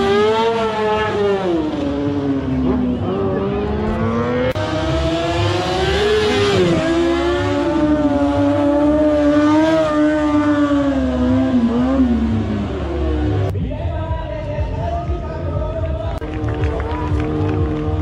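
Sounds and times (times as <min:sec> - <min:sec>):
motorcycle engine at high revs: 0:00.0 - 0:13.5.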